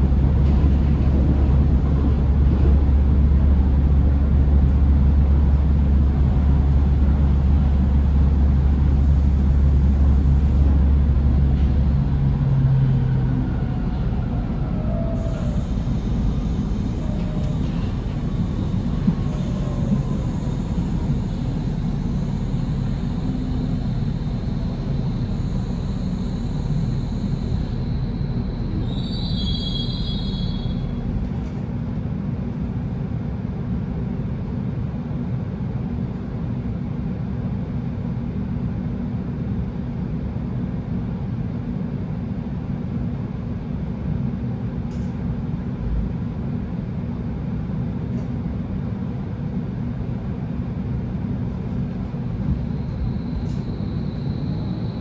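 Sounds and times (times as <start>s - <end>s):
train wheels rumbling on track: 0.0s - 55.0s
wheels squealing: 23.0s - 31.1s.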